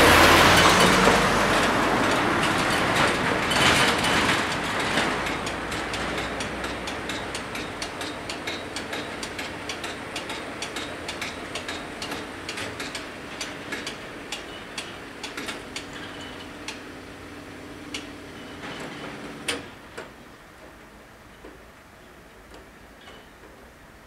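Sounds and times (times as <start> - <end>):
rapid irregular ticking: 0.1 - 16.8.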